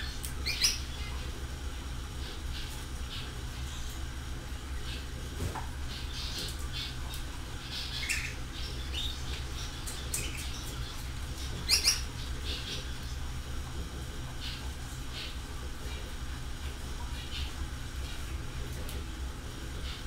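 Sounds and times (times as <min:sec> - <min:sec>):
bird squawks: 0:00.0 - 0:01.1, 0:07.6 - 0:10.6, 0:11.5 - 0:13.1
birds chirping: 0:00.0 - 0:18.9, 0:19.7 - 0:20.0
steady low hum: 0:00.0 - 0:20.0.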